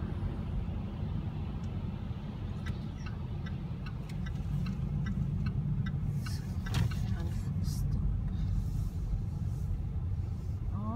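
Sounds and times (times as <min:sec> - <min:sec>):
car cabin rumble: 0:00.0 - 0:10.9
light ticks: 0:02.5 - 0:07.5.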